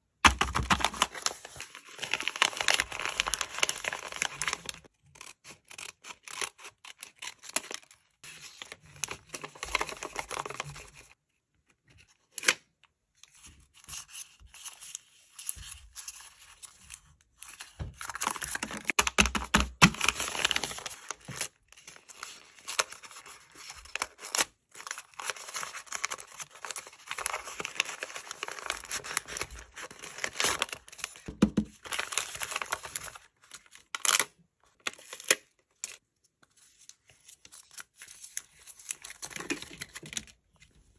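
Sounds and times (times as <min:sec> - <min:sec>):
paper rustling and tearing: 0:00.4 - 0:11.2, 0:19.9 - 0:34.2.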